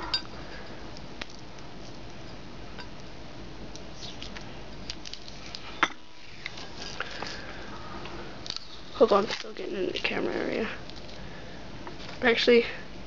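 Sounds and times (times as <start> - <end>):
tape peeling clicks and crackles: 3.7 - 5.7, 8.4 - 10.1.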